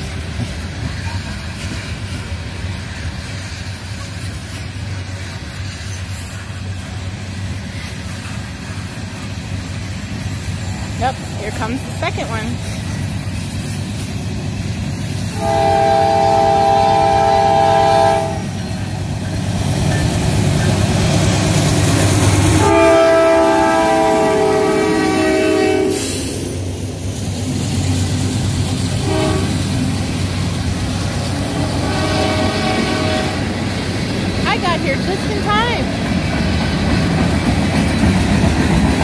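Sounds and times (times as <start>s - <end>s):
freight train wheels clattering: 0.0s - 39.0s
locomotive air horn blasts: 15.4s - 18.6s, 22.5s - 26.2s, 29.0s - 29.7s, 31.6s - 33.5s.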